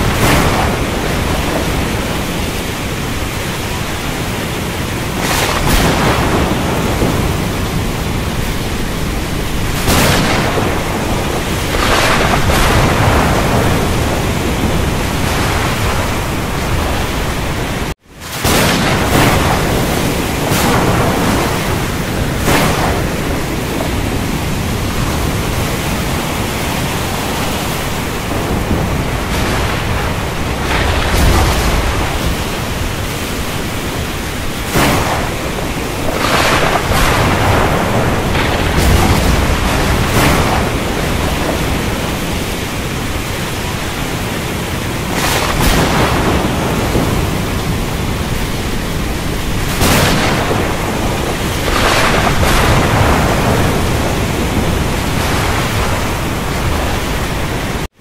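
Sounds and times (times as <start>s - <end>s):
heavy rain hissing: 0.0s - 57.9s
rolling thunder: 0.0s - 57.9s.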